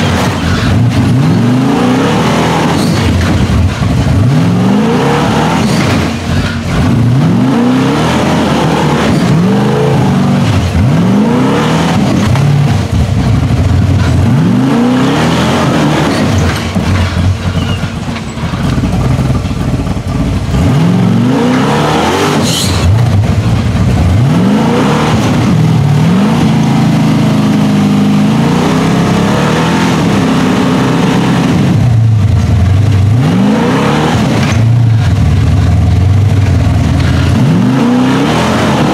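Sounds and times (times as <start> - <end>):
engine revving in bursts: 0.0 - 38.9.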